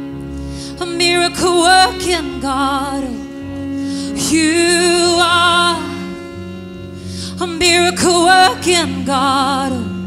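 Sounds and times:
woman singing worship song: 0.8s - 3.3s, 7.4s - 10.0s.

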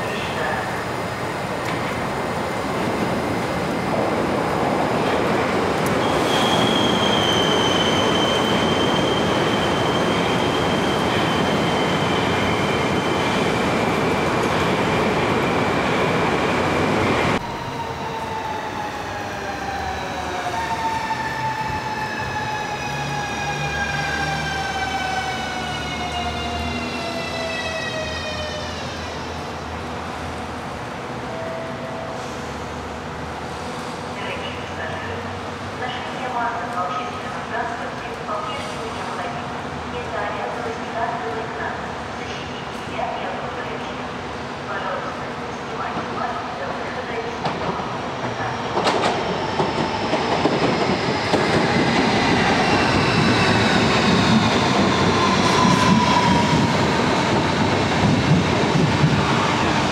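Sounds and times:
train rumbling on rails: 0.0s - 59.9s
high squeal: 6.0s - 13.2s.

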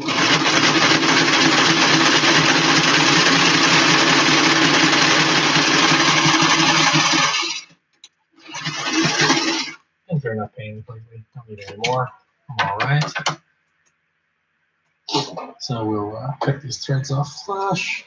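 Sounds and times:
electric sewing machine running: 0.0s - 7.7s, 8.4s - 9.8s.

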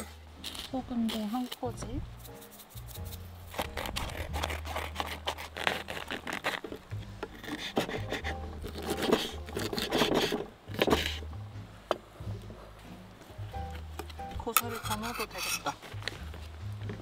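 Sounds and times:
knife cutting on wooden board: 2.2s - 11.2s
plastic bag handled: 3.5s - 11.1s.

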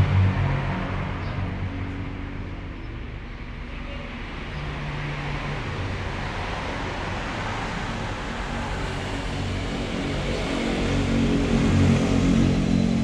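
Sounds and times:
vehicle engine hum: 0.0s - 13.0s.

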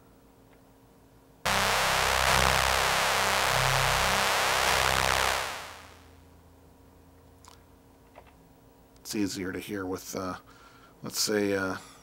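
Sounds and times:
synthesizer playing buzzy patch: 1.5s - 6.0s.

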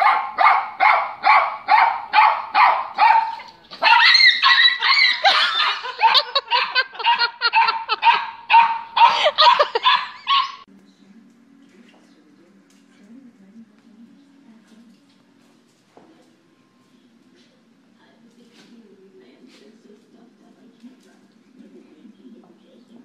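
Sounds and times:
small dog barking: 0.0s - 10.6s.

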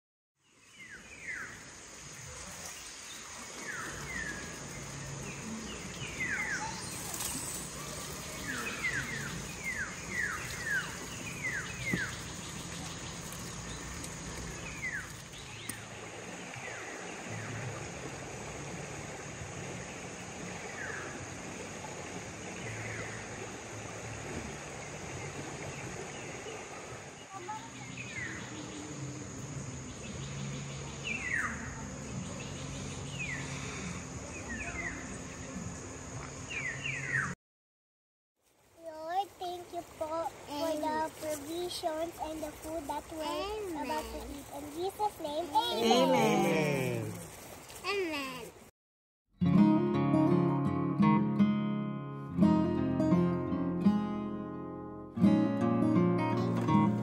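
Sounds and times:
outdoor background noise: 0.4s - 37.4s, 38.4s - 48.7s, 49.4s - 57.0s
birds chirping: 0.5s - 17.8s, 24.4s - 35.7s, 36.4s - 37.4s
high insect drone: 0.8s - 37.0s.

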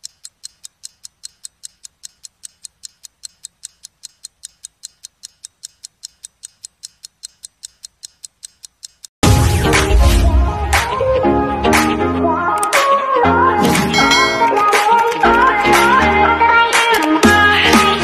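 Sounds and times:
clock ticking rapidly: 0.0s - 9.1s, 13.6s - 16.0s.

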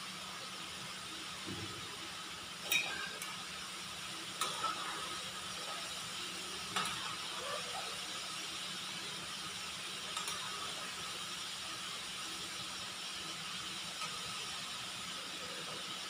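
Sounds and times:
steady hiss: 0.0s - 16.0s
metal spoon clinking against pan: 2.7s - 3.3s.

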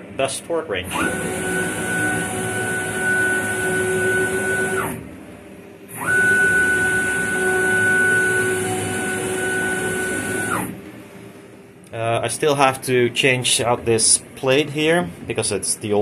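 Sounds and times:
stepper motors whining: 0.8s - 5.1s, 5.9s - 10.8s.

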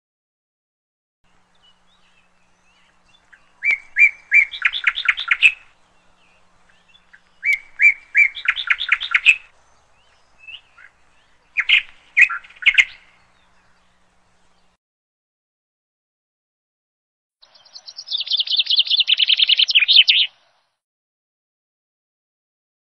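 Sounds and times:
bird chirping: 1.3s - 14.8s, 17.4s - 20.8s.

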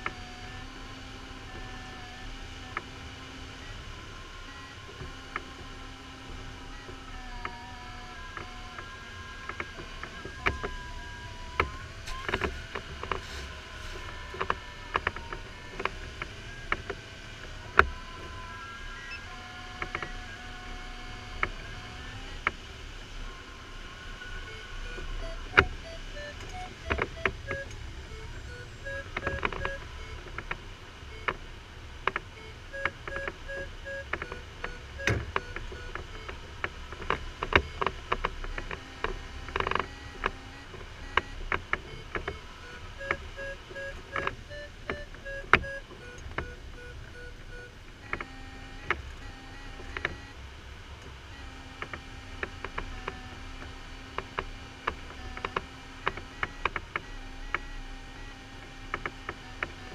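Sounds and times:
variometer beeping: 1.6s - 22.4s, 23.9s - 50.4s
airflow hiss: 12.1s - 14.2s.

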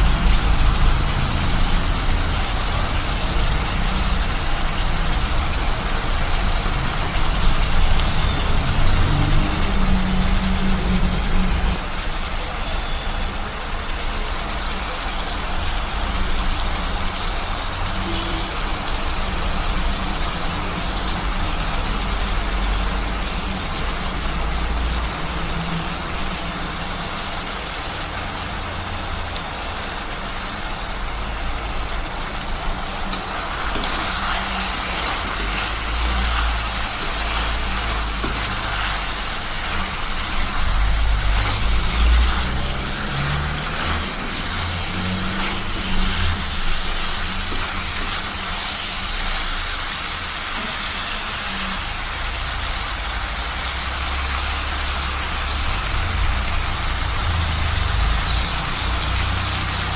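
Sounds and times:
chicken sizzling in oil: 0.0s - 59.9s
steel spoon stirring in wok: 31.7s - 51.4s.

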